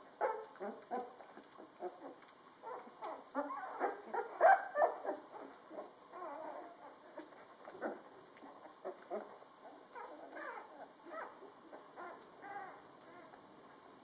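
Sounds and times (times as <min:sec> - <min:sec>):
puppies crying: 0:01.8 - 0:08.0, 0:08.7 - 0:13.4.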